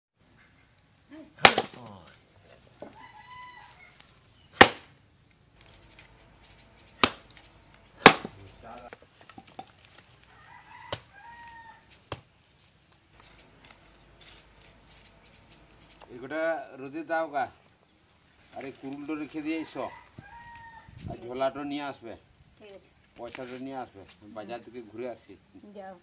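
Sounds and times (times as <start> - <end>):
axe chopping firewood: 1.4 - 2.0, 4.5 - 5.0, 6.9 - 9.9, 11.9 - 12.3
rooster crowing: 2.8 - 4.1, 10.2 - 12.0, 19.3 - 21.1.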